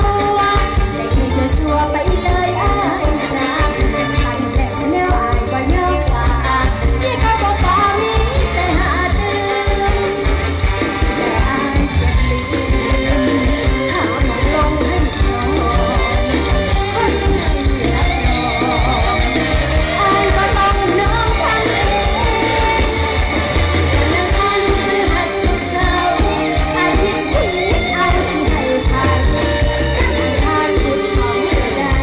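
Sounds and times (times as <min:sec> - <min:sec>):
bass-heavy beat: 0:00.0 - 0:32.0
person singing with ornamented voice: 0:00.0 - 0:32.0.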